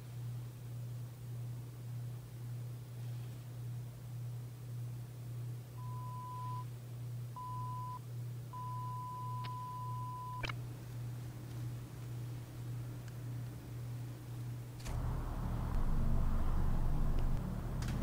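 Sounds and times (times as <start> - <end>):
steady low hum: 0.0 - 18.0
electronic beeps: 7.4 - 8.0, 8.6 - 10.5.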